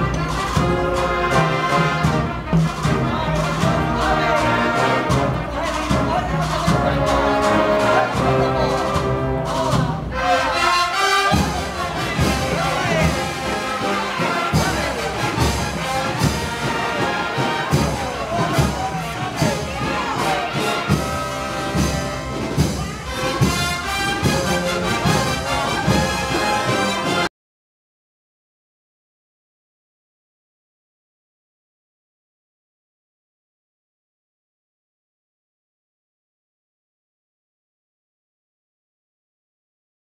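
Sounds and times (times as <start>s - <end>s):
brass band playing a march: 0.0s - 27.3s
steady drum beat: 0.0s - 27.3s
trumpets and trombones: 0.0s - 27.3s.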